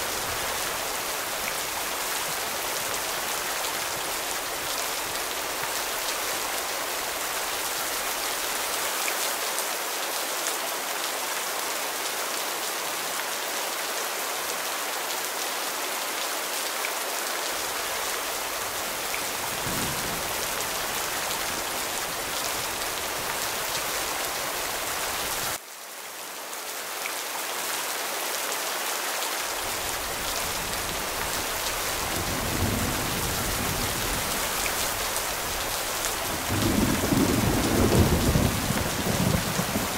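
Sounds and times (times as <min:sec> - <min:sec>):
steady rain falling: 0:00.0 - 0:39.9
low thunder rumbling: 0:19.3 - 0:21.8, 0:31.8 - 0:39.9.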